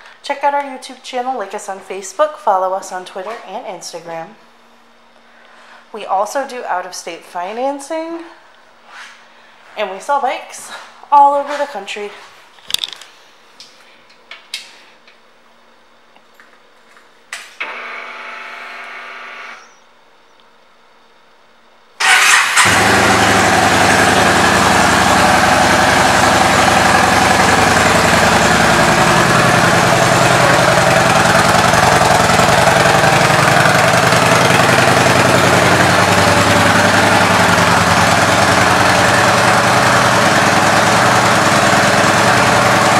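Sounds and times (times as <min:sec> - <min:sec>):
motorcycle engine starting and idling: 0:22.0 - 0:42.9.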